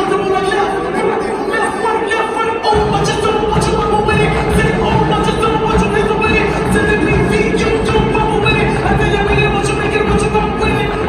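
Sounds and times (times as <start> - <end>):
brass chords: 2.7 - 11.0
drum hits: 2.7 - 11.0.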